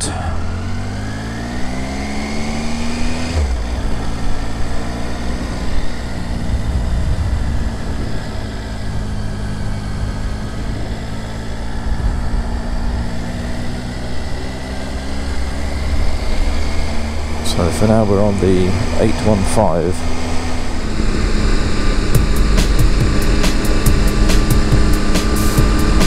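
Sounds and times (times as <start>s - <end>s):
motorcycle engine shifting gear: 18.4s - 26.0s.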